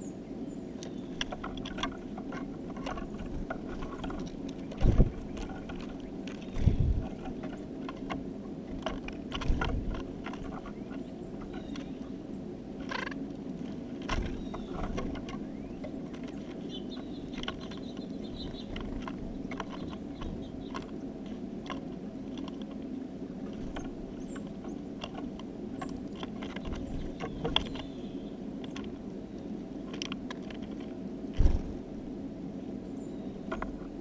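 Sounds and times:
steady low hum: 0:00.0 - 0:34.0
beaks tapping on feeder: 0:00.8 - 0:12.2, 0:14.0 - 0:22.8, 0:23.5 - 0:30.8
faint high bird chirps: 0:14.2 - 0:18.8.

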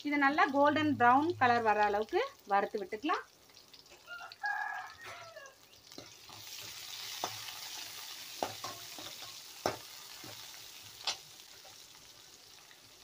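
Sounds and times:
onions and garlic sizzling in oil: 0:00.0 - 0:13.0
steel spoon clinking against pan: 0:08.4 - 0:10.4.

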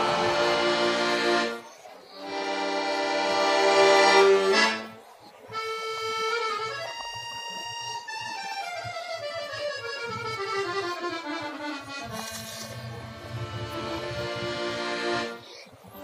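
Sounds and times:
accordion chords: 0:00.0 - 0:16.0.

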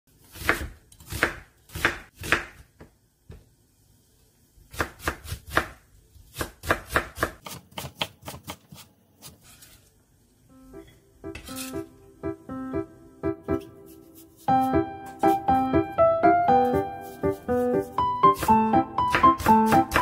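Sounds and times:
knife cutting on wooden board: 0:13.6 - 0:14.6.

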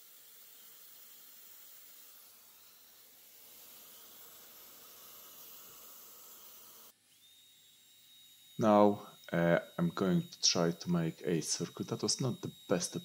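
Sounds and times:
faint hum with high tone: 0:08.0 - 0:13.0.

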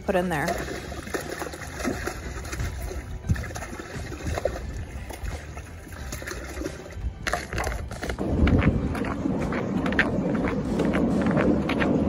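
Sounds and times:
water and fish splashing: 0:00.0 - 0:09.6.

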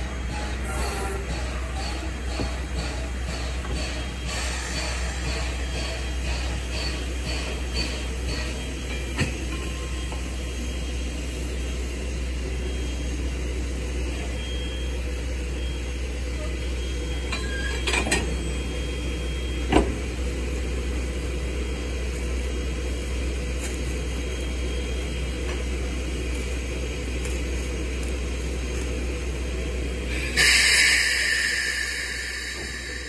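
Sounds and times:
locomotive rumbling: 0:00.0 - 0:33.0
rush of air from brake line: 0:30.2 - 0:33.0.

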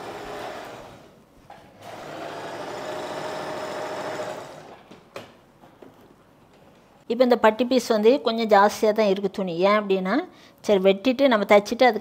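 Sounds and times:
sewing machine stitching: 0:01.8 - 0:04.8.

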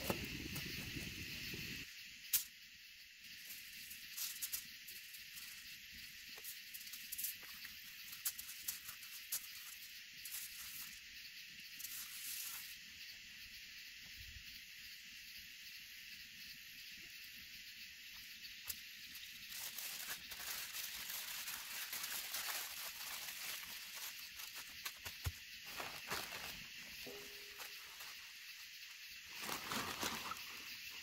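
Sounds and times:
night insects chorus: 0:00.0 - 0:31.0
aluminium foil crinkling: 0:06.7 - 0:11.0, 0:19.1 - 0:28.2, 0:29.2 - 0:30.7.

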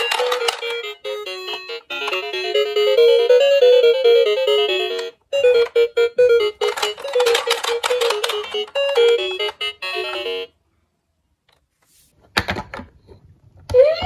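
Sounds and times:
toy siren wailing: 0:13.7 - 0:14.0.

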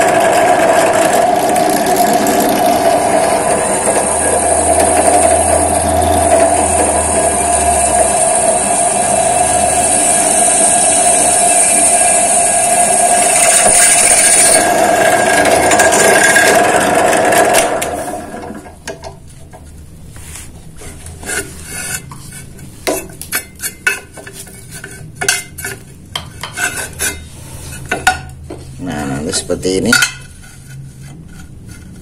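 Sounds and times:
drill bit cutting steel: 0:00.0 - 0:17.9.

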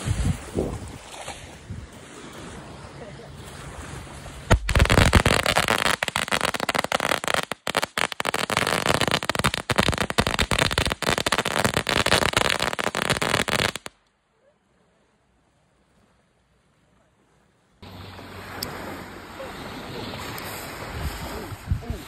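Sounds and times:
firecrackers banging: 0:04.5 - 0:13.9.

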